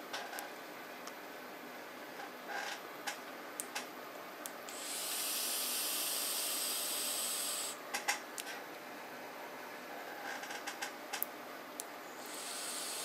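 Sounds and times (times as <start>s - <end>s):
steady hiss: 4.7s - 7.8s, 12.1s - 13.0s.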